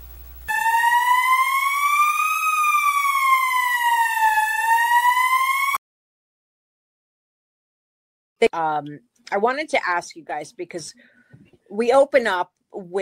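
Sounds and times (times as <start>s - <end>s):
siren wailing: 0.5s - 5.8s.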